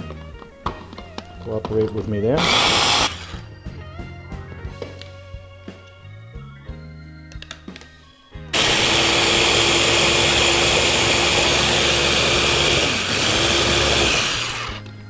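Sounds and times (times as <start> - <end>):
light background music: 0.0 - 15.0
food chopper motor running: 2.4 - 3.4, 8.6 - 14.8.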